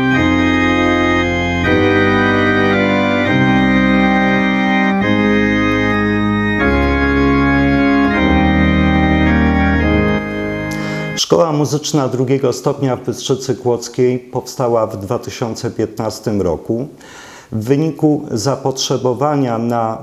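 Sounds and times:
organ playing slow chords: 0.0s - 11.3s.

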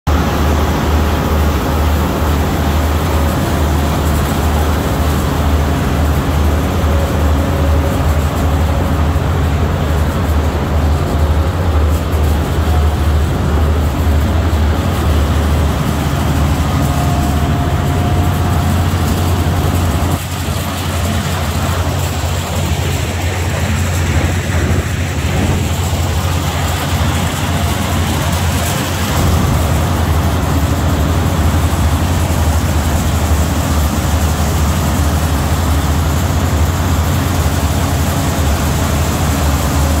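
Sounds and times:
engine droning: 0.1s - 40.0s.

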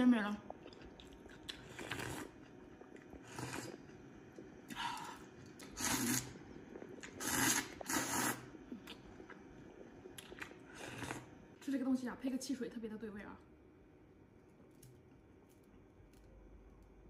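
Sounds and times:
person eating: 0.5s - 11.4s.

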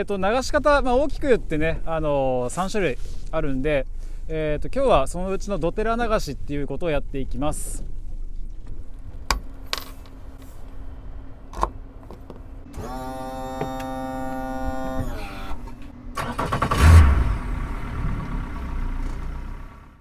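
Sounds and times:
outboard motor running: 12.7s - 15.9s
electric starter whining: 12.7s - 17.7s.

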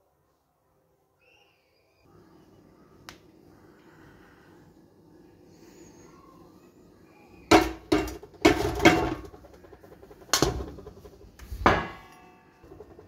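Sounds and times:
metal vessel knocking on sieve: 7.5s - 9.4s.

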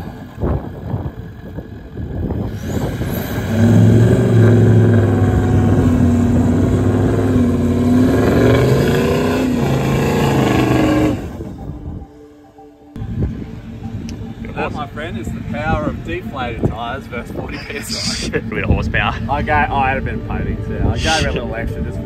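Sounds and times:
wheels spinning in sand: 0.0s - 11.4s
engine revving hard: 2.5s - 11.5s.

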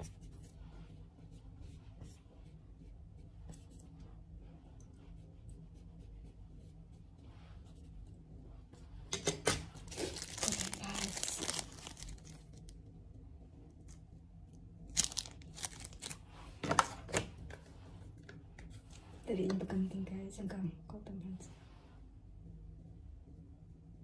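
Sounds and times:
plastic wrapper tearing and crinkling: 9.8s - 12.6s, 14.9s - 16.2s.

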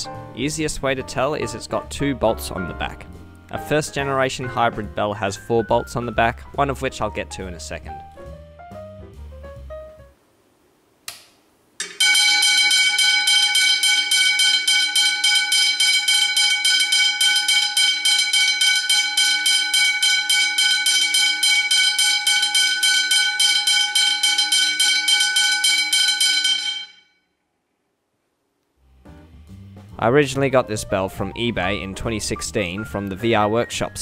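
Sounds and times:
level crossing bell ringing: 11.8s - 27.2s.

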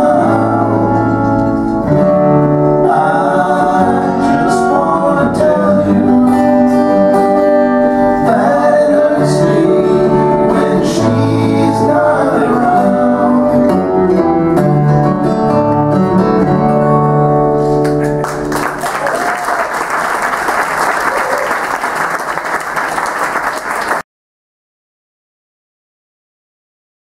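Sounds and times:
acoustic guitars and voices: 0.0s - 18.4s
audience applause: 17.8s - 24.0s.

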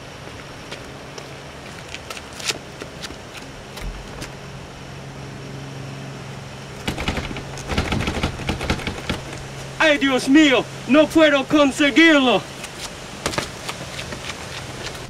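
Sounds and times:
steady low hum: 0.0s - 15.0s
footsteps on steps: 0.2s - 4.4s, 12.6s - 15.0s
door handle rattling against lock: 6.8s - 9.4s.

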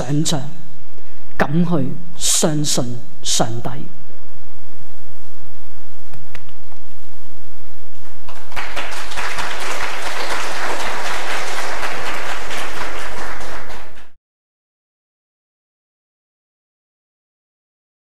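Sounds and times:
low hum: 0.0s - 8.6s
audience applauding: 8.1s - 14.2s.

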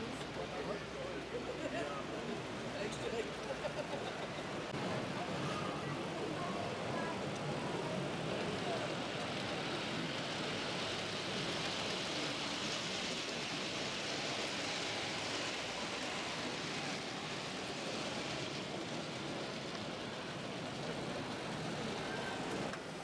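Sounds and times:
model train rolling on track: 0.0s - 23.0s.

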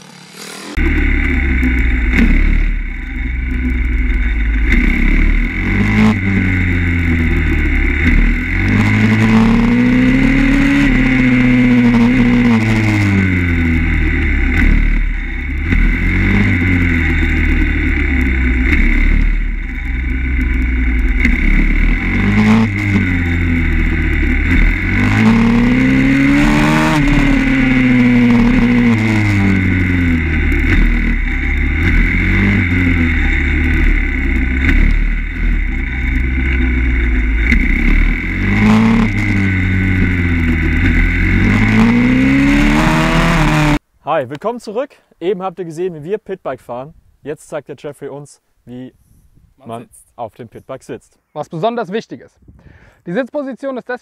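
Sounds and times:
motorbike engine revving: 0.0s - 43.8s.

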